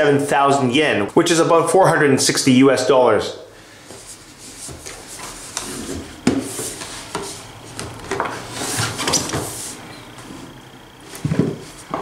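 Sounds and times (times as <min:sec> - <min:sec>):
cardboard sliding on wood: 0:04.0 - 0:10.5.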